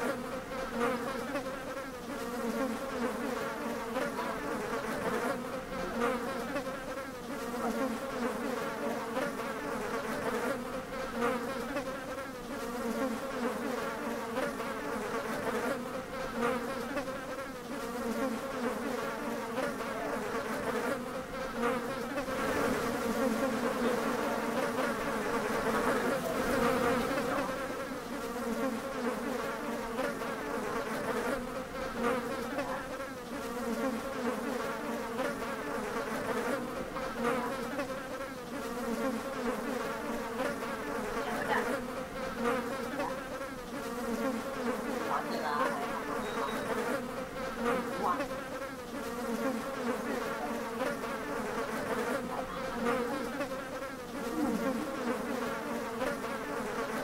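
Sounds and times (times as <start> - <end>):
buzzing drone: 44.7 - 48.6.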